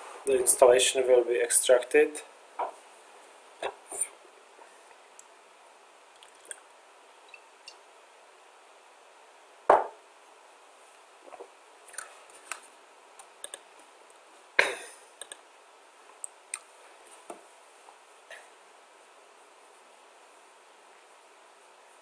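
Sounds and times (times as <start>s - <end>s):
faint microphone hiss: 0.0s - 22.0s
computer mouse clicking: 15.2s - 15.4s.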